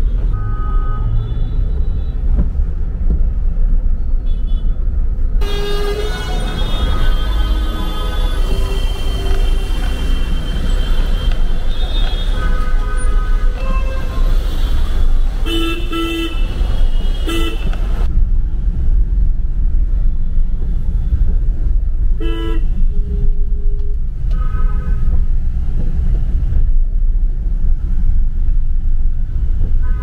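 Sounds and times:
low rumble of engines: 0:00.0 - 0:30.0
car horns honking: 0:05.4 - 0:17.8.

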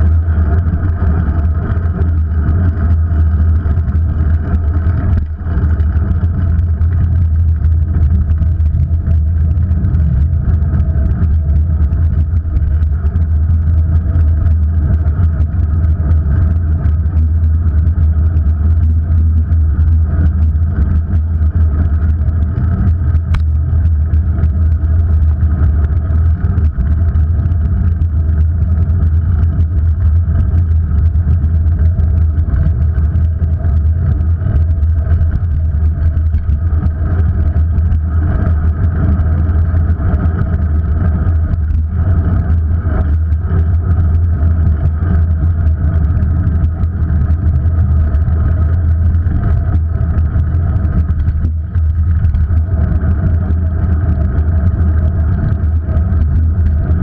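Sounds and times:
faint steady hum: 0:00.0 - 0:57.0
road and wind rumble: 0:00.0 - 0:57.0.

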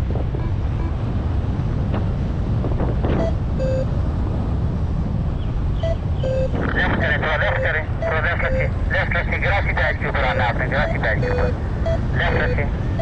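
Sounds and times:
wind rushing over microphone: 0:00.0 - 0:13.0
short electronic beep: 0:03.2 - 0:03.9, 0:05.8 - 0:06.6, 0:10.3 - 0:13.0.

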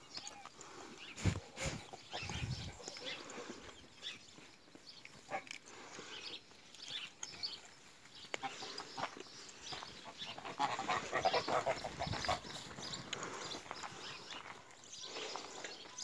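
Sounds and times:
geese honking and gabbling: 0:10.0 - 0:13.4.

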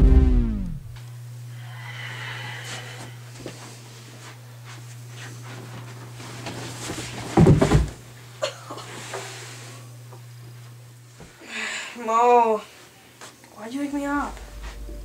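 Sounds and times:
steady low hum: 0:00.0 - 0:15.0
bedding rustling: 0:03.4 - 0:08.0
heavy thud on floor: 0:07.3 - 0:08.0.

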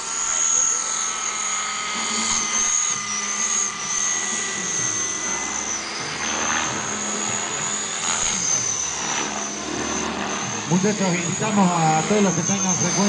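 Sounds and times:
model helicopter whine: 0:00.0 - 0:13.0.

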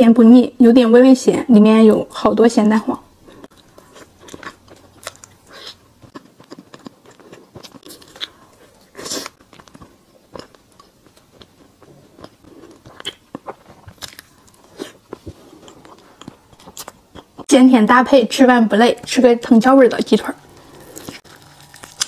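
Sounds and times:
biting and chewing soft food: 0:03.1 - 0:17.5, 0:20.4 - 0:22.0.

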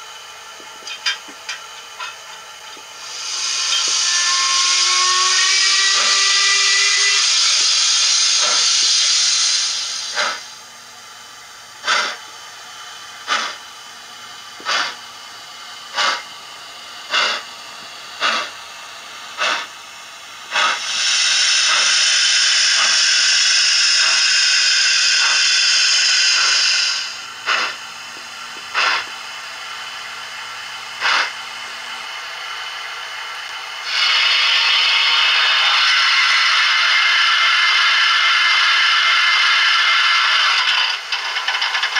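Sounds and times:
steam locomotive exhaust chuffs: 0:00.0 - 0:41.9
steam hiss: 0:02.8 - 0:10.7, 0:11.8 - 0:41.9.

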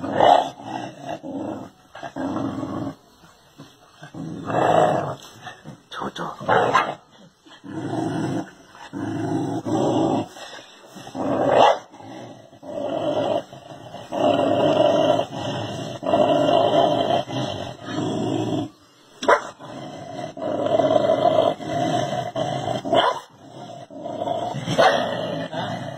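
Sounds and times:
dog growling: 0:00.0 - 0:25.9.

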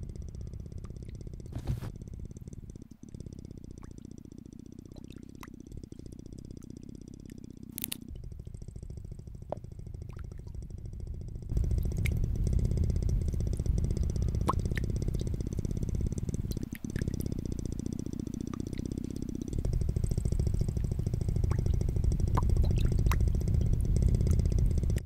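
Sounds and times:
low pulsing rumble: 0:00.0 - 0:25.0
short hiss: 0:01.5 - 0:01.9
small clicks: 0:07.2 - 0:08.2.

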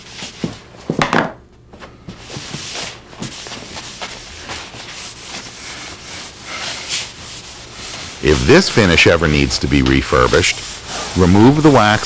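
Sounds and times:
pad scrubbing wood: 0:02.4 - 0:12.0.

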